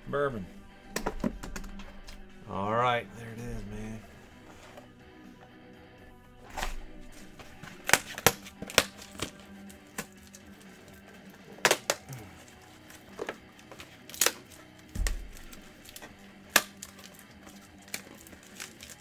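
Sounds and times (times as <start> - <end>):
box and packaging clicks: 7.7 - 10.4, 11.6 - 19.0.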